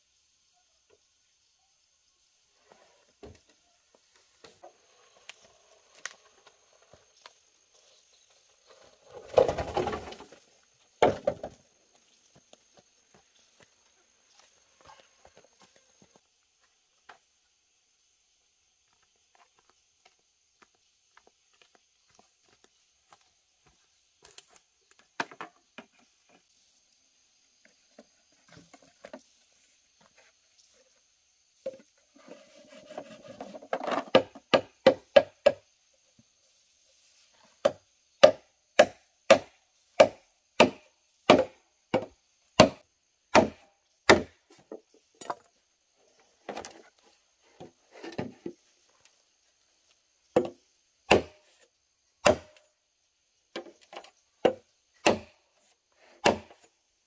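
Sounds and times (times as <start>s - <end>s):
machete chopping bamboo: 37.6s - 44.4s, 50.4s - 51.5s, 52.2s - 52.7s, 54.4s - 55.4s, 56.2s - 56.6s.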